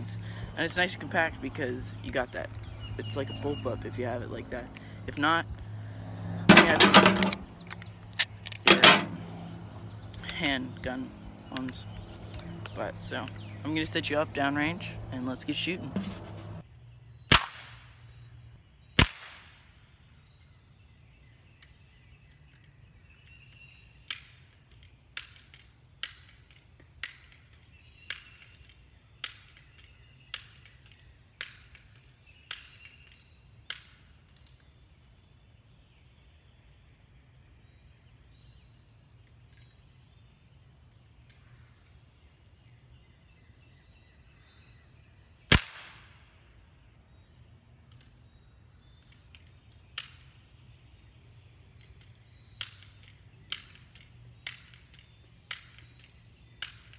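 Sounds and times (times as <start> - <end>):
air pistol shots cracking: 17.3 - 17.8, 19.0 - 19.6, 45.5 - 46.2.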